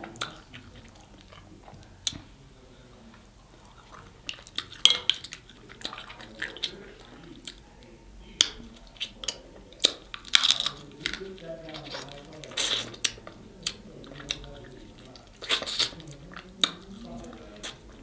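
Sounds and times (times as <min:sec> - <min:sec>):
wet chewing and smacking: 0:00.0 - 0:02.3, 0:03.0 - 0:18.0
crab shell cracking: 0:08.4 - 0:17.9.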